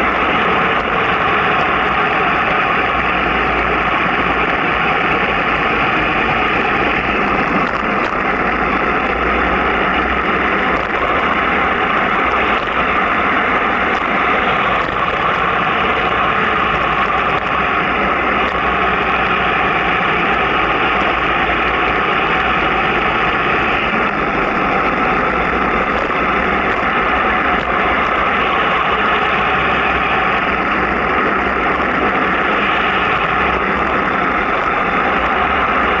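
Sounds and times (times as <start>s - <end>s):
road noise: 0.0s - 36.0s
rushing wind: 0.0s - 36.0s.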